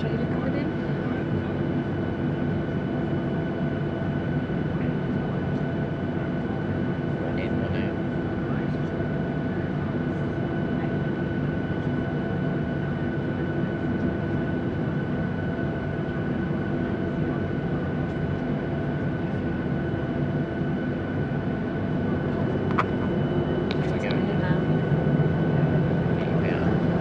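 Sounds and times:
jet engines low rumble: 0:00.0 - 0:27.0
high even engine whine: 0:18.0 - 0:27.0.

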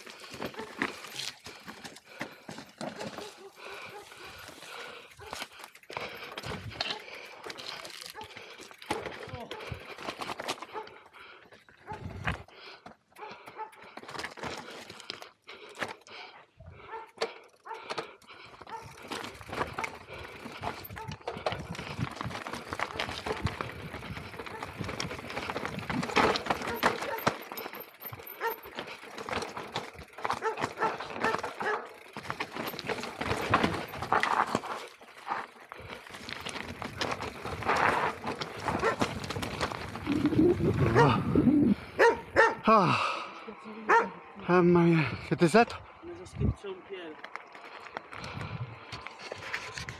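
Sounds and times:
tyres crunching over stones: 0:00.0 - 0:10.8, 0:13.9 - 0:16.1, 0:18.5 - 0:42.6, 0:47.1 - 0:49.9
bike rattling: 0:00.0 - 0:43.2, 0:45.8 - 0:49.9
dog barking: 0:03.2 - 0:04.2, 0:16.8 - 0:17.8, 0:30.4 - 0:31.9, 0:38.8 - 0:39.0, 0:40.9 - 0:41.2, 0:42.0 - 0:42.6, 0:43.9 - 0:44.2.

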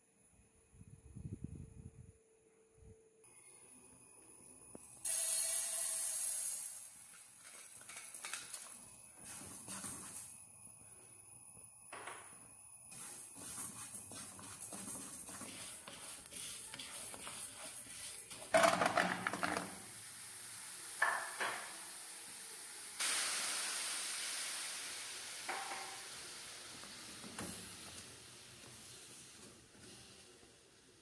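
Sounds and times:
sizzling hiss in hot pan: 0:04.4 - 0:11.7, 0:12.6 - 0:18.6, 0:19.2 - 0:31.0
wooden spatula stirring: 0:12.9 - 0:18.5.

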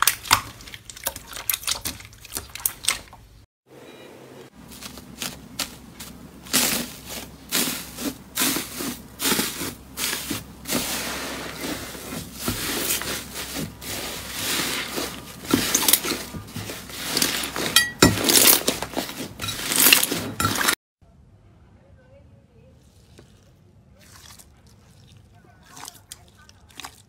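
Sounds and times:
slime squelching: 0:00.0 - 0:03.4, 0:04.6 - 0:20.8, 0:22.7 - 0:27.0
foil crinkling and crackling: 0:04.6 - 0:20.8.

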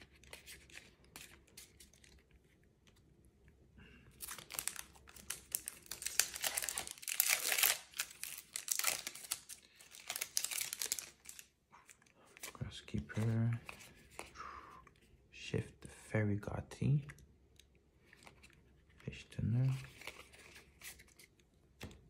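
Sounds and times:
foil wrapper crinkling and tearing: 0:04.2 - 0:11.5.

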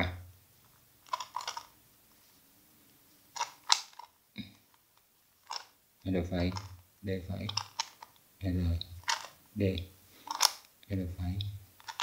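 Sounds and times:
plastic puzzle clicking: 0:01.0 - 0:01.8, 0:03.4 - 0:05.8, 0:06.4 - 0:06.8, 0:07.4 - 0:08.2, 0:08.8 - 0:09.4, 0:10.2 - 0:10.7, 0:11.4 - 0:12.0.

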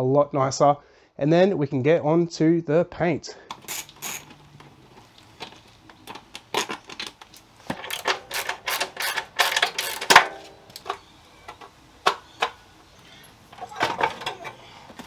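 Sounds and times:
metallic clicks and rattles: 0:03.5 - 0:12.6.

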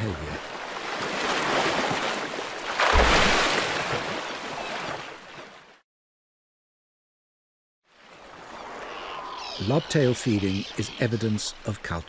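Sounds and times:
sea water sloshing and splashing: 0:00.3 - 0:05.8
whale tail slapping water: 0:00.5 - 0:05.6.

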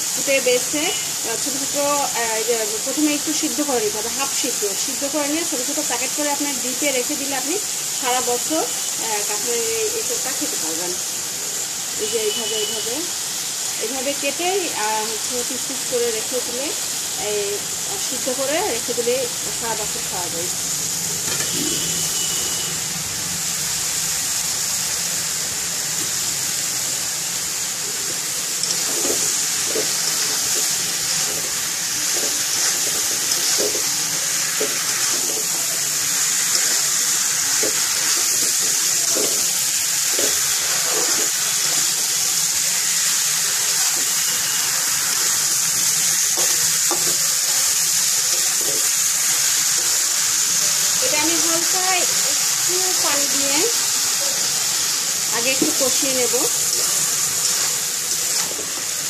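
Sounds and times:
food sizzling in hot oil: 0:00.0 - 0:59.0
spatula scraping a wok: 0:27.8 - 0:42.0, 0:42.8 - 0:49.5.

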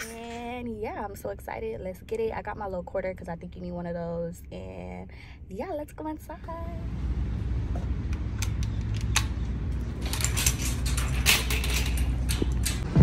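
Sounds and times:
steady low rumble: 0:00.4 - 0:13.0
shopping cart rattling on concrete: 0:09.8 - 0:12.8.

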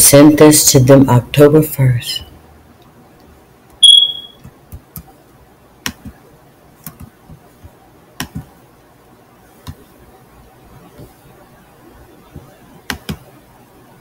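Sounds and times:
high beep: 0:03.8 - 0:04.4.

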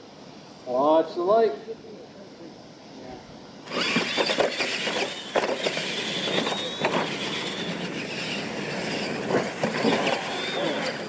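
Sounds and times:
toy truck motors whining: 0:03.6 - 0:11.0.

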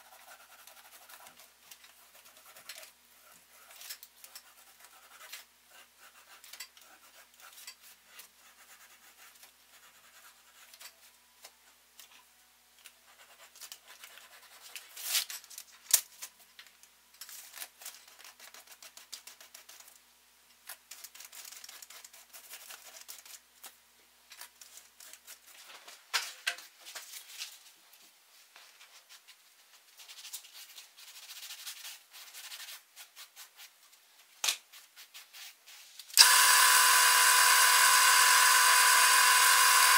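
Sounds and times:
sharp clicks: 0:36.2 - 0:39.9.

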